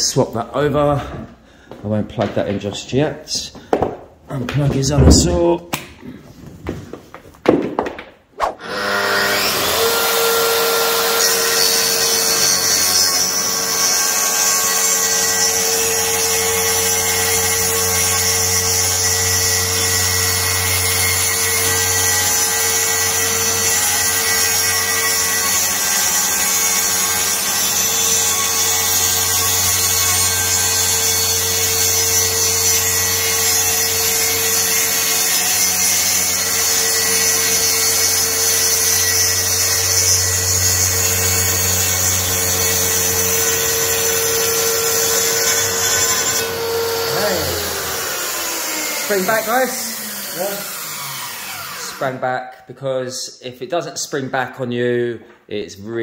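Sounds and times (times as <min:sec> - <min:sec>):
plunge saw cutting plywood: 0:08.5 - 0:52.2.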